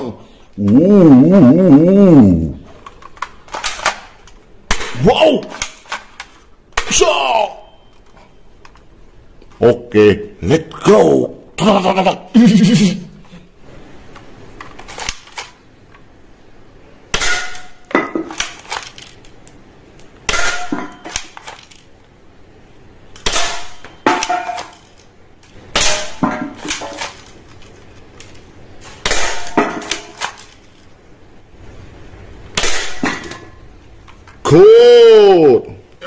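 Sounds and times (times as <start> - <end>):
metallic clangs and clattering: 20.3 - 21.8, 23.2 - 25.0, 25.8 - 27.4, 29.0 - 30.6, 32.6 - 33.6.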